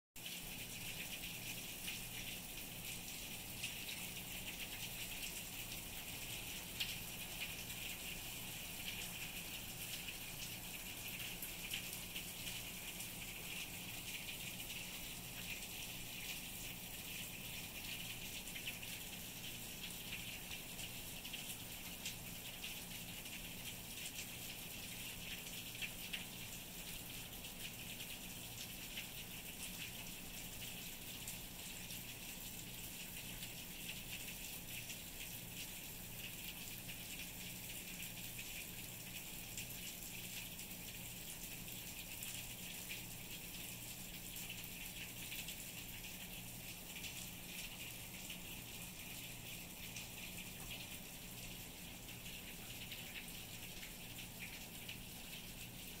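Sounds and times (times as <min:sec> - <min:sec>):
rain on leaves and concrete: 0:00.2 - 0:56.0.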